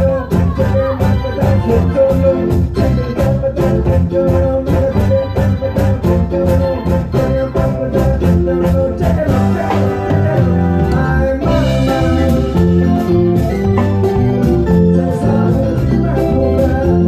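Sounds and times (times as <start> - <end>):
band playing music: 0.0 - 17.0
electronic conga and bongo hits: 0.0 - 17.0.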